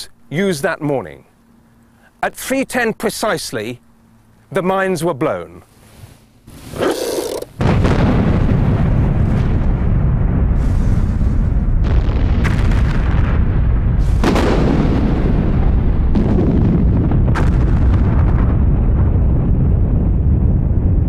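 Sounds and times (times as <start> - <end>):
deep explosion rumble: 7.6 - 21.0
sharp explosion blasts: 7.6 - 21.0.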